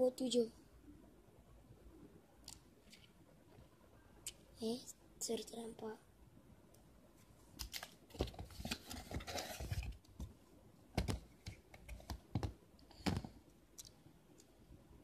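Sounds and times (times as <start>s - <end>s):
sharp knocks of plastic or card: 11.0s - 13.3s.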